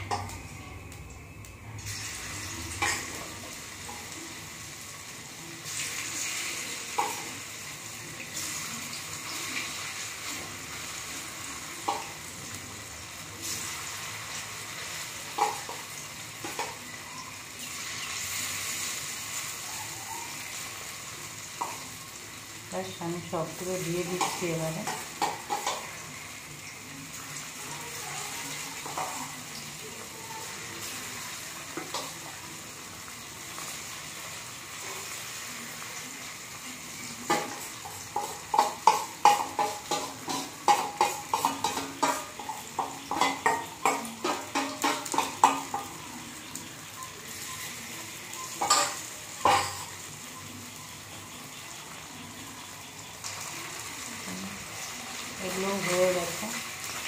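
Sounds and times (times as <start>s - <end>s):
food sizzling in hot oil: 0.0s - 57.0s
metal spatula scraping and clacking: 24.0s - 26.0s, 37.3s - 46.0s, 48.6s - 49.9s.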